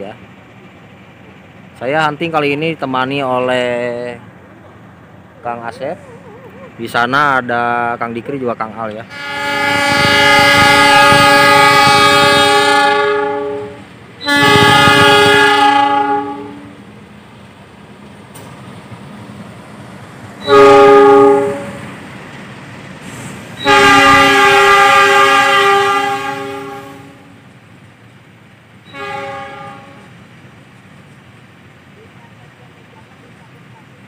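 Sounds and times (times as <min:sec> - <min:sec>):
low rumble of moving train: 0:00.0 - 0:34.0
locomotive horn blasts: 0:09.1 - 0:16.8, 0:20.4 - 0:21.9, 0:23.6 - 0:27.4, 0:28.9 - 0:30.1.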